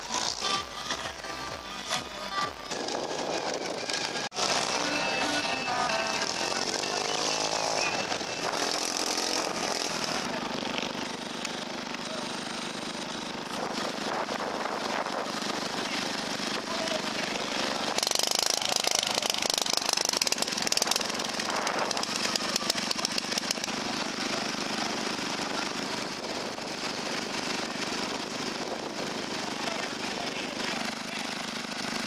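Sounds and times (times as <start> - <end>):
ride-on lawnmower engines: 0.0 - 32.0.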